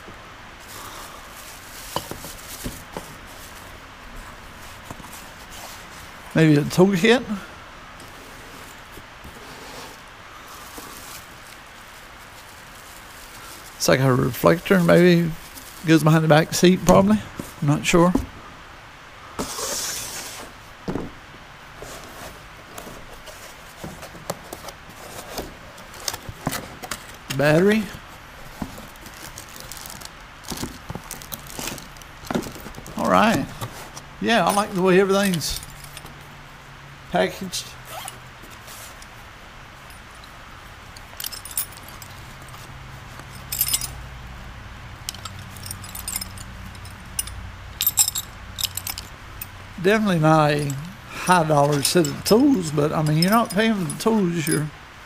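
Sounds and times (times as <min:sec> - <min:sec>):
cardboard rubbing scrape: 0:08.1 - 0:10.0, 0:19.4 - 0:20.6, 0:21.8 - 0:26.8
packaging clicks and rustles: 0:21.9 - 0:36.2
steel hand tools clinking: 0:34.4 - 0:36.1, 0:43.2 - 0:44.0, 0:45.1 - 0:54.7.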